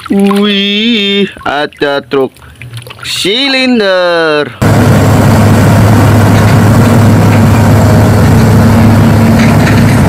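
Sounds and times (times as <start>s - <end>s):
road roller diesel engine running: 4.6s - 10.0s.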